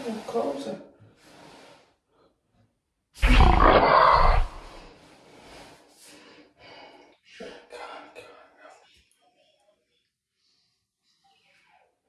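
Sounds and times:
woman's rough guttural throat sound: 3.2s - 4.8s
breathing and throat noises: 3.2s - 7.3s.

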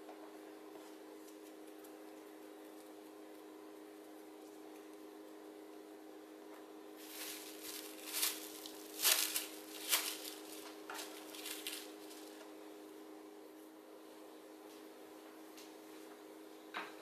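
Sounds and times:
cling film crinkling: 7.0s - 12.4s.

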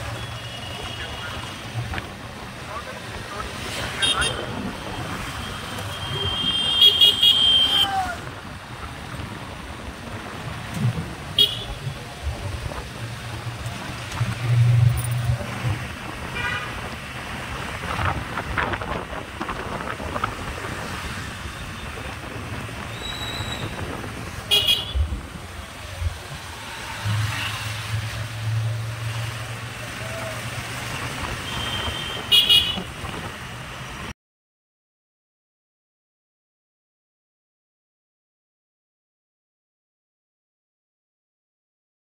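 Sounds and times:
engine and road noise: 0.0s - 34.2s
vehicle horn toots: 5.9s - 7.9s, 11.4s - 11.8s, 24.5s - 25.0s, 31.4s - 32.9s.

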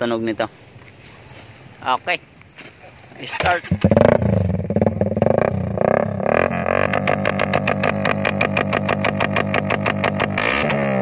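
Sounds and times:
motorcycle engine starting and idling: 3.2s - 11.0s.

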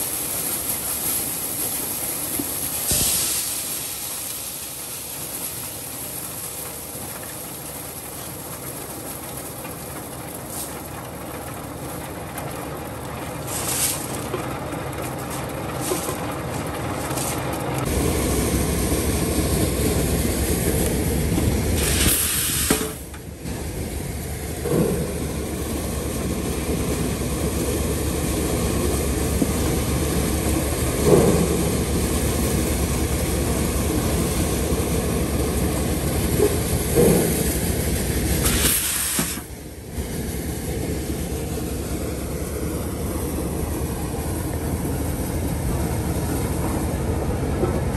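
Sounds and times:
kernels pouring out: 0.0s - 9.0s
maize sheller running: 0.0s - 47.9s
low engine drone: 6.0s - 47.9s.

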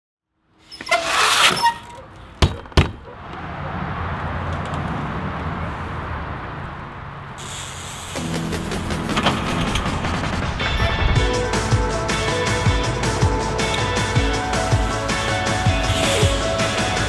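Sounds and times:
metal clatter and scraping: 8.4s - 11.2s.

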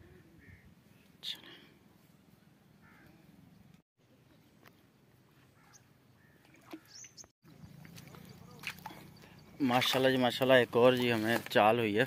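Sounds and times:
faint bird chirps: 5.6s - 9.6s.

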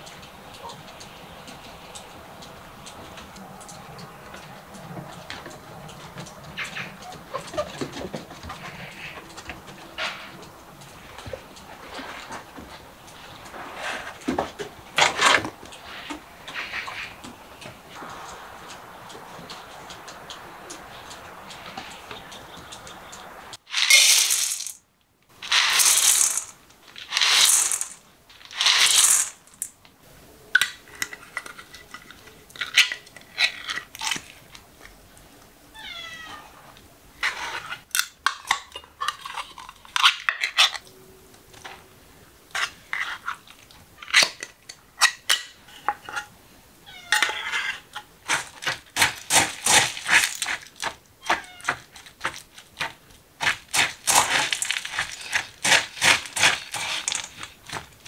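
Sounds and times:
kibble rattling into metal bowl: 23.7s - 24.8s, 25.4s - 29.7s, 48.2s - 57.9s
cat meowing: 35.7s - 36.6s, 46.8s - 47.4s, 51.2s - 51.8s.

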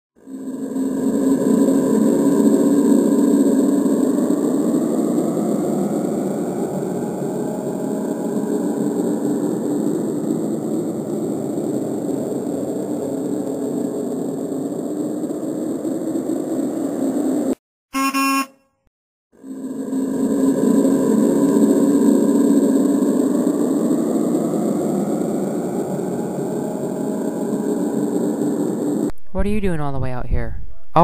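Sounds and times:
steady rushing noise: 0.3s - 17.6s, 19.5s - 29.1s
short horn-like blast: 17.9s - 18.7s.

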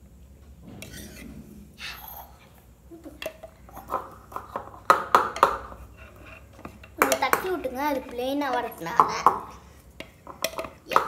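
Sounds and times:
whisk scraping steel bowl: 0.8s - 1.3s, 5.4s - 9.0s
metal tumblers knocked on floor: 3.2s - 5.8s, 8.8s - 9.6s, 10.2s - 11.0s.

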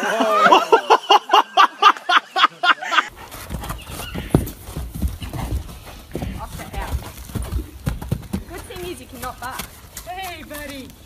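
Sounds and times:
person laughing hard: 0.0s - 3.1s
horse hooves on sand: 3.1s - 11.0s.

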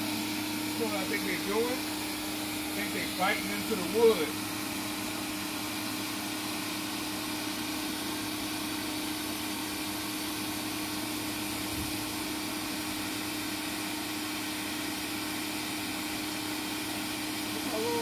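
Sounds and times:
pressure washer motor hum: 0.0s - 18.0s
water jet hissing: 0.0s - 18.0s.

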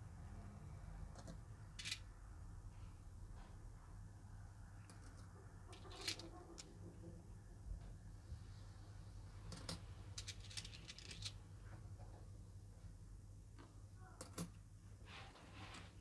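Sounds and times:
coins clinking: 1.8s - 2.0s, 9.5s - 11.4s.

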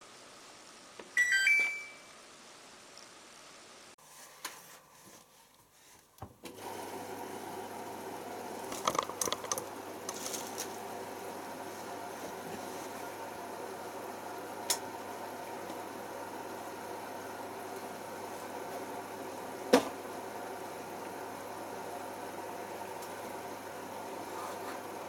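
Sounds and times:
washing machine hum: 5.8s - 25.0s.

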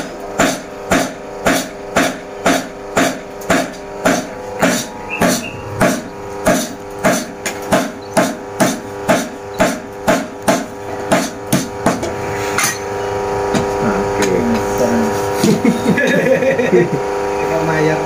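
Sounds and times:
steady hum: 0.0s - 18.0s
hammer striking steel on anvil: 0.4s - 12.9s.

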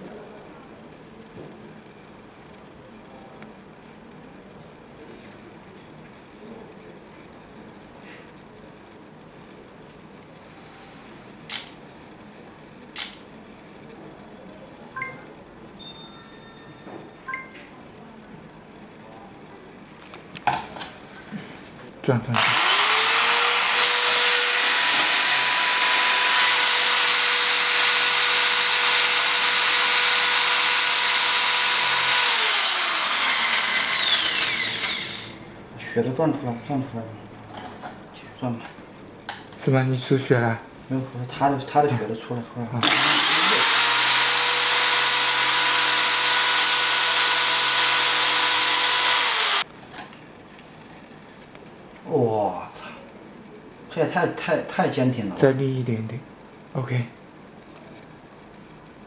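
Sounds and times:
electric drill grinding glass: 22.4s - 35.4s, 42.8s - 49.6s.

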